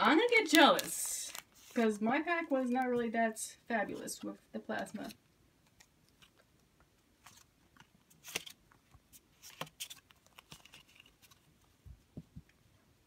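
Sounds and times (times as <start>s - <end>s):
trading cards being handled: 0.2s - 2.0s, 7.2s - 11.8s.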